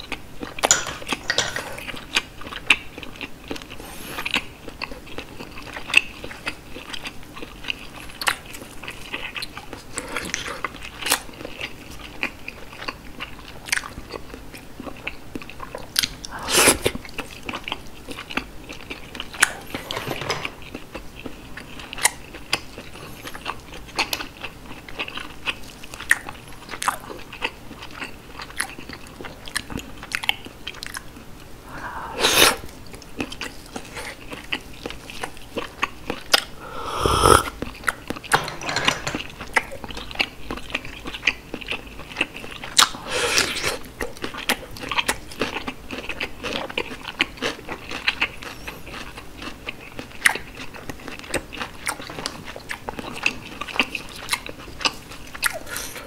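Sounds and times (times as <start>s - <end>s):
wet chewing clicks and smacks: 10.6s - 16.3s, 20.7s - 31.2s, 43.9s - 55.6s.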